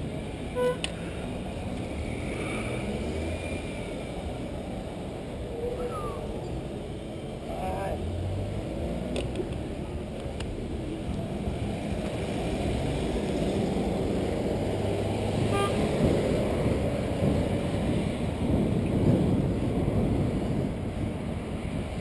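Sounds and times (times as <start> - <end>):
city car traffic: 0.0 - 22.0
wind on microphone: 11.4 - 22.0.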